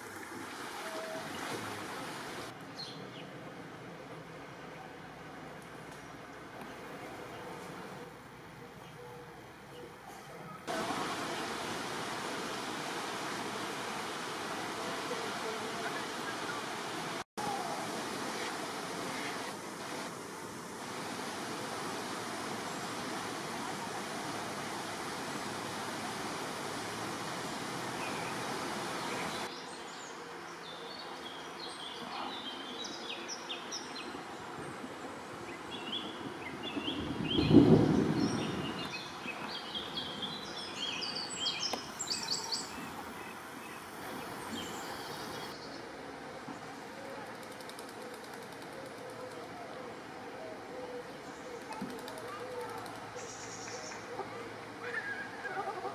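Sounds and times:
stream water flowing: 0.0s - 2.7s, 10.7s - 29.7s, 38.8s - 47.0s.

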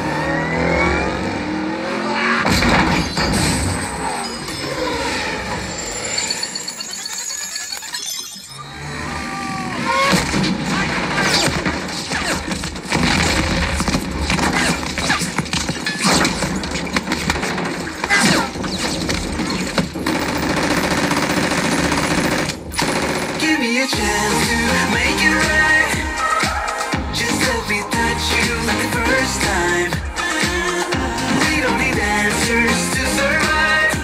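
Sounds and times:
machine-gun fire and gunshots: 10.2s - 23.7s.

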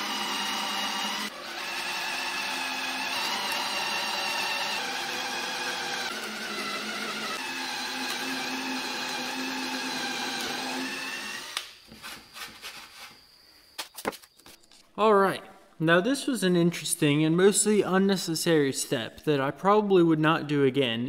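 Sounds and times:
cordless drill motor whine: 0.0s - 11.7s.

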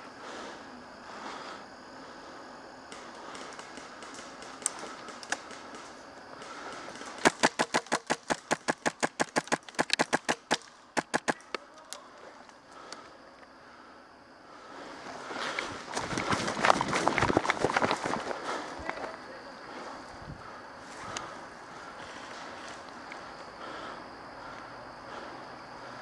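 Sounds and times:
airsoft rifle shots: 3.3s - 11.6s.

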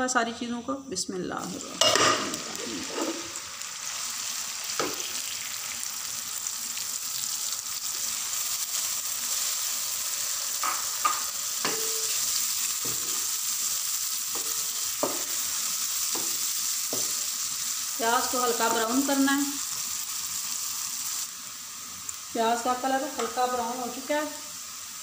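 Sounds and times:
onions sizzling in oil: 1.4s - 25.0s.

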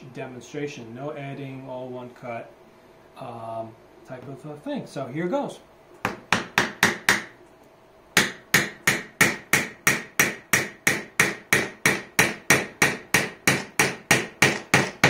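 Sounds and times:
hammer striking nail into wood: 6.0s - 7.3s, 8.2s - 15.0s.

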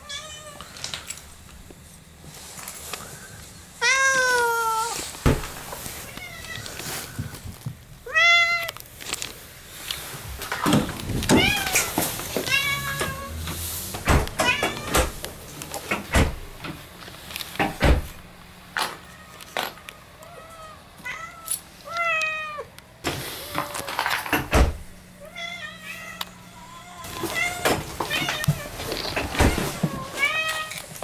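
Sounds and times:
cat meowing: 3.8s - 5.0s, 11.4s - 13.4s.

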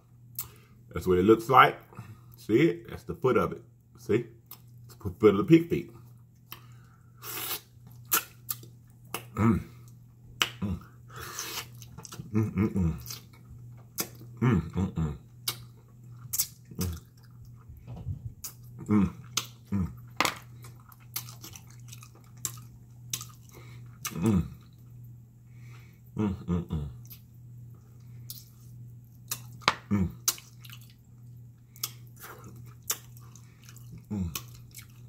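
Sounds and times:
steady low hum: 0.0s - 35.0s
chewing and lip-smacking: 4.4s - 5.0s, 6.0s - 12.3s, 13.0s - 14.4s, 15.3s - 25.0s, 27.0s - 35.0s.

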